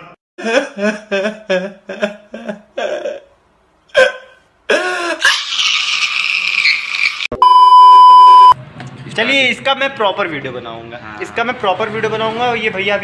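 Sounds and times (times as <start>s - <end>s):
man crying wail: 0.4s - 5.4s.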